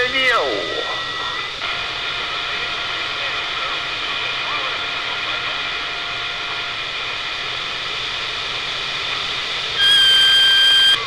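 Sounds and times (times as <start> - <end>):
radio static hiss: 0.0 - 11.0
faint whistling tones: 9.8 - 11.0.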